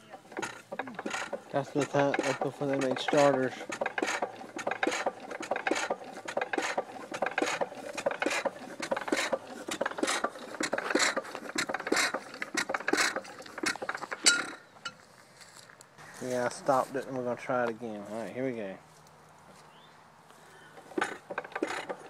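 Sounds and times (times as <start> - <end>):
gas engine beating: 0.0 - 15.0, 20.6 - 22.0.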